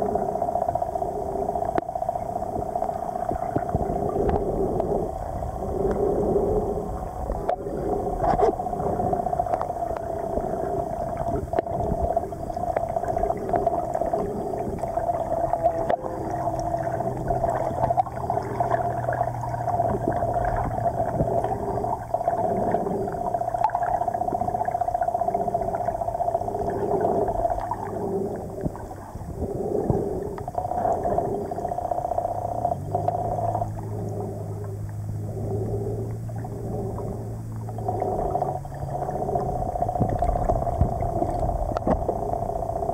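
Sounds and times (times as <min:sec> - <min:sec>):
low steady drone: 0:00.0 - 0:42.9
underwater water hum: 0:00.0 - 0:42.9.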